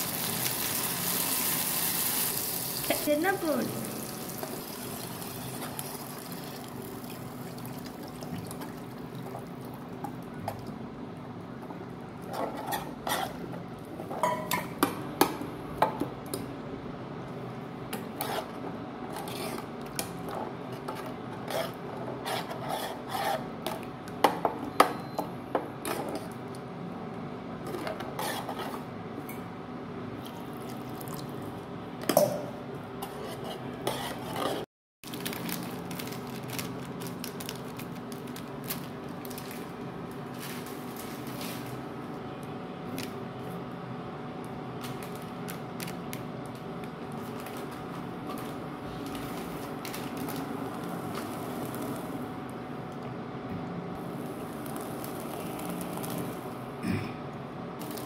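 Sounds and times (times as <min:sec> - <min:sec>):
hot pan hissing: 0:00.0 - 0:03.1.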